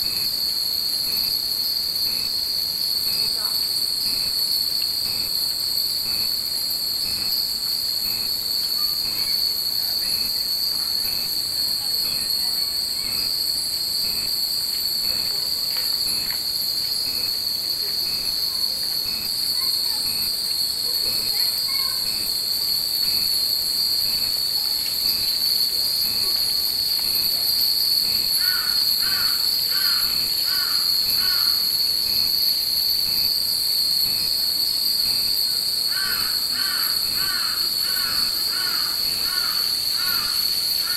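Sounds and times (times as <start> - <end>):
cicadas shrilling: 0.0 - 40.9
crow cawing: 28.4 - 31.6, 35.9 - 40.9.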